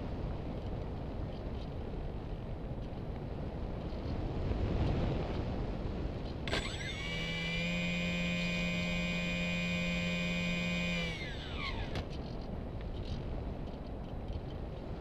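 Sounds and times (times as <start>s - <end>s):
wind on microphone: 0.0s - 15.0s
click: 6.5s - 6.9s
electric motor whine: 6.5s - 12.1s.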